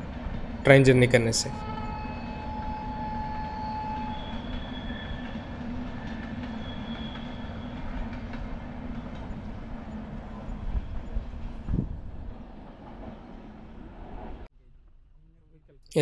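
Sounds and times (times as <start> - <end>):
train wheels rumbling on rails: 0.0 - 14.5
thin squealing tones: 1.5 - 8.3.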